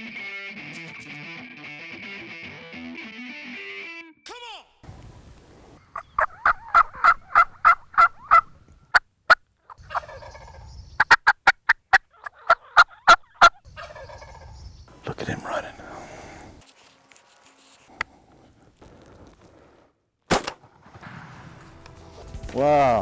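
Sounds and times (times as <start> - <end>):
rough long turkey call: 5.8 - 8.6
turkey yelping: 5.8 - 14.6.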